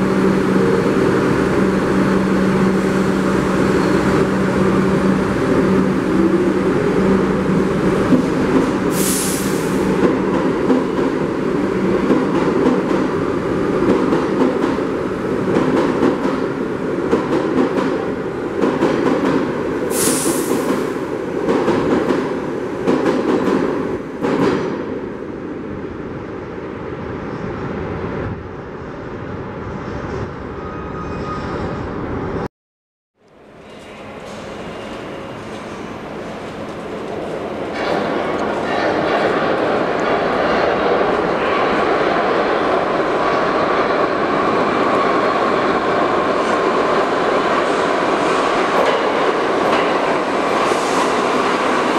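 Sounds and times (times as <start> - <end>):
subway train rumbling: 0.0 - 32.5, 33.2 - 51.9
short high hisses: 8.9 - 9.9, 19.9 - 20.7.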